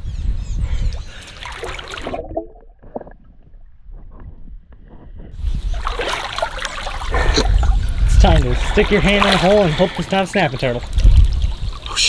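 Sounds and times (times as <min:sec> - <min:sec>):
water sloshing and splashing: 0:01.0 - 0:12.0
faint underwater knocks and clicks: 0:02.4 - 0:05.4.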